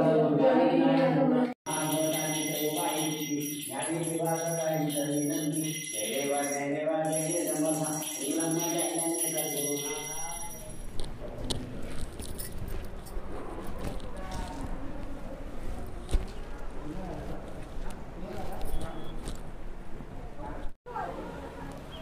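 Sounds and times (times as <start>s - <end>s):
voices chanting a mantra: 0.0s - 9.8s
steady high ringing: 1.7s - 11.1s.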